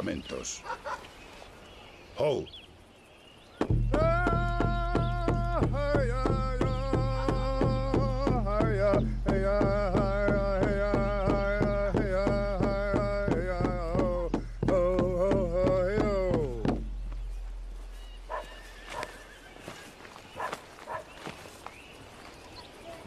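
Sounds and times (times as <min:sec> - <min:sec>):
dog barking: 0:00.6 - 0:01.0, 0:18.3 - 0:19.2, 0:20.4 - 0:21.2
frame drum beat: 0:03.6 - 0:18.6
man chanting: 0:03.9 - 0:16.8.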